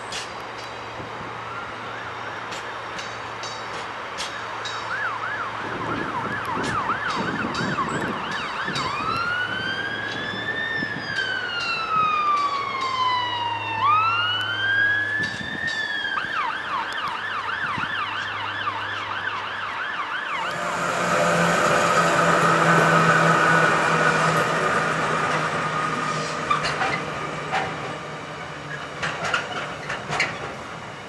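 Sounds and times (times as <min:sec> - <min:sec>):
emergency vehicle siren: 0:01.0 - 0:03.0, 0:04.8 - 0:31.0
train wagons rolling past: 0:20.4 - 0:31.0.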